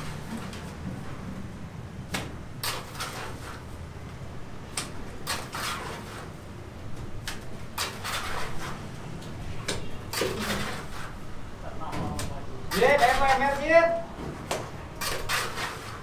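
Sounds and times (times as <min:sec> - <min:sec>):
trowel scraping wet mortar: 0:02.6 - 0:03.7, 0:05.2 - 0:06.4, 0:07.3 - 0:08.9, 0:10.1 - 0:11.2, 0:12.7 - 0:13.7, 0:15.0 - 0:16.0.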